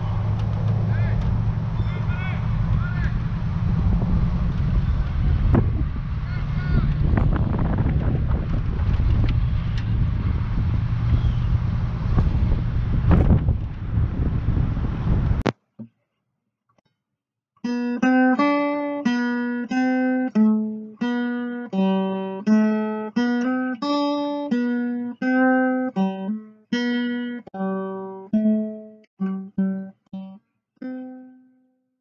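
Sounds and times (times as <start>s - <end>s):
picked acoustic guitar melody: 17.6s - 31.6s.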